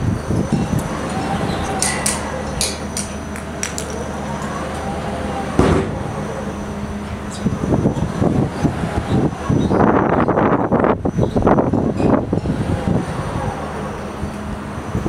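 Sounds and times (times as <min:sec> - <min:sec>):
ride machinery humming: 0:00.0 - 0:15.0
heavy knock: 0:05.6 - 0:06.0.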